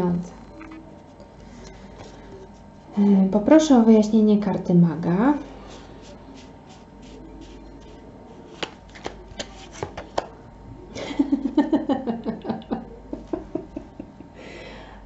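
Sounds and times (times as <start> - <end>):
cards being shuffled: 5.7 - 10.4.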